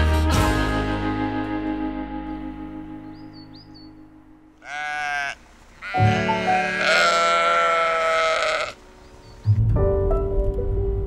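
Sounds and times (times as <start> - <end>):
sheep bleating: 4.6 - 8.8.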